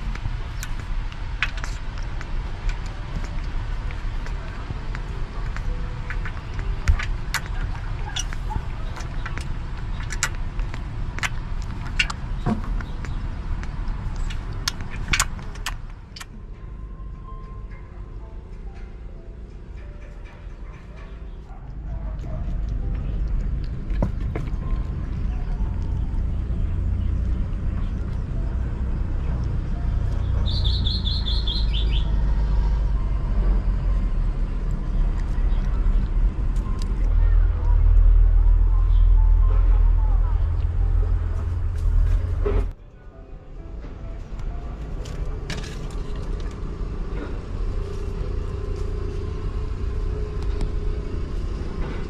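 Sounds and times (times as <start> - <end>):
steady low rumble: 0.0 - 52.0
bird chirping: 22.8 - 32.8.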